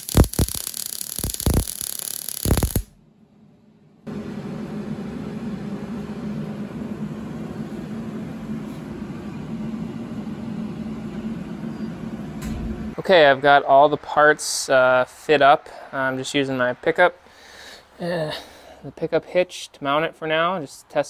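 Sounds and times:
welder crackling: 0.0s - 3.0s
low whirring machine hum: 2.5s - 19.0s.

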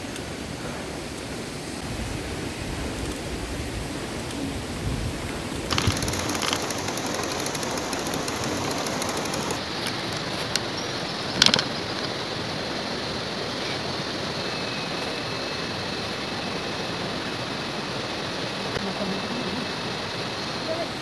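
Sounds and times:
fast clicking: 5.6s - 10.7s
sharp clicks: 5.7s - 10.7s.

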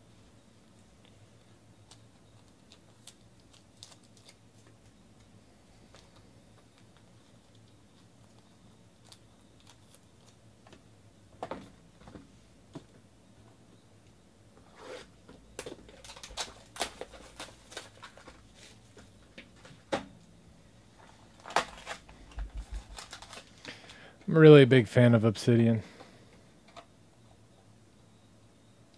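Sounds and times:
cardboard box crinkling and tearing: 15.9s - 18.8s, 22.6s - 23.5s.

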